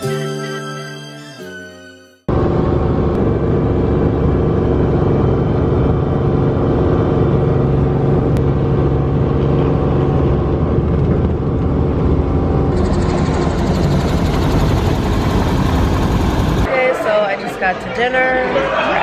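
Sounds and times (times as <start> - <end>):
vehicle engine running: 2.3 - 16.7.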